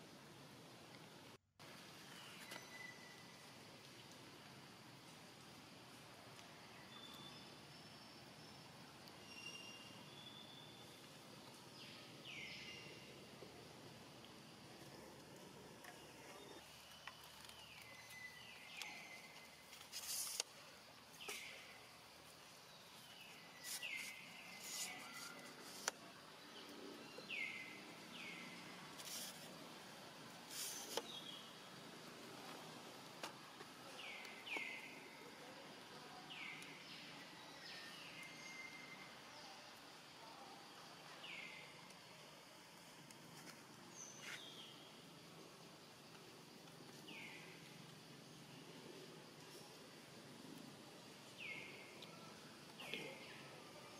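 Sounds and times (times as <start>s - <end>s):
steady hiss: 0.0s - 53.9s
short hissy bursts: 19.8s - 20.5s, 28.9s - 29.6s, 30.4s - 31.1s.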